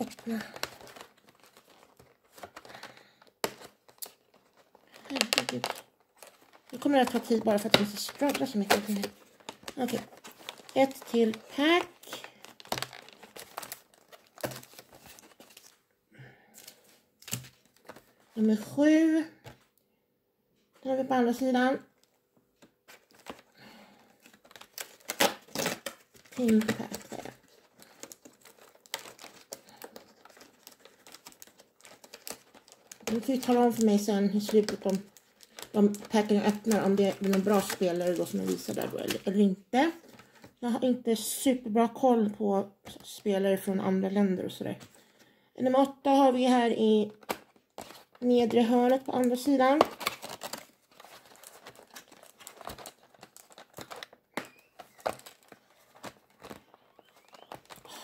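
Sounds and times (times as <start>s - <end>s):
wrapper crinkling: 0.0s - 15.8s, 22.0s - 39.4s, 46.8s - 58.0s.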